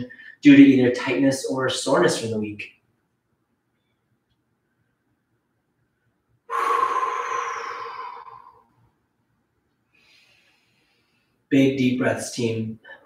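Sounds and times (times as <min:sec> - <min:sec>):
faint short breath: 0:06.5 - 0:08.8
man sighing exhale: 0:06.5 - 0:08.8.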